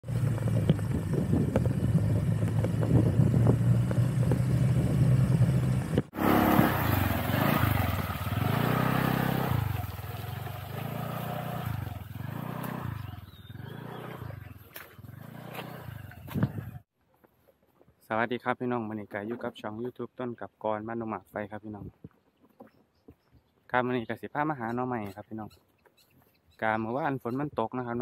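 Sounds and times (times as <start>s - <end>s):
small motorcycle engine revving: 0.0s - 16.8s.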